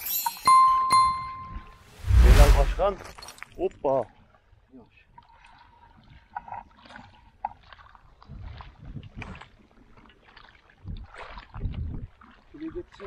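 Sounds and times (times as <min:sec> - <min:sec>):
low rumbles: 0:01.9 - 0:03.0
water lapping at shore: 0:03.6 - 0:13.0.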